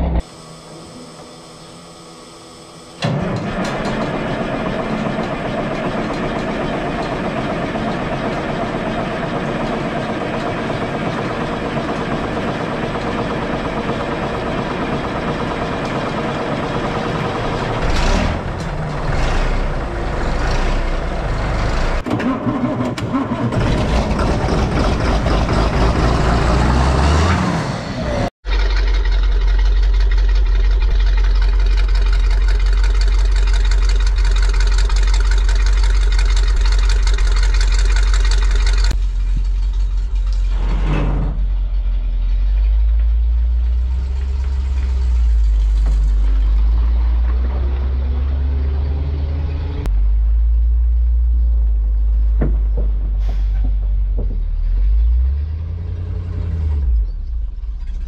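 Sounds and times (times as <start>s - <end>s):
diesel engine cranking and revving: 2.6s - 58.0s
vehicle exhaust idling low rumble: 28.4s - 58.0s.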